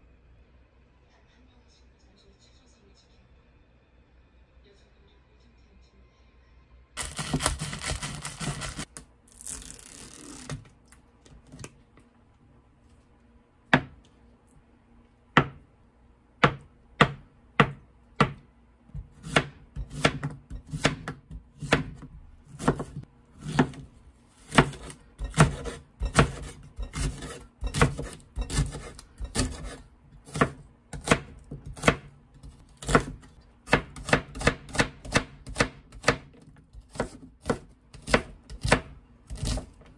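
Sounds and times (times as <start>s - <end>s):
knife chopping on wooden board: 7.0s - 8.9s, 13.7s - 14.0s, 15.3s - 15.6s, 16.4s - 39.9s.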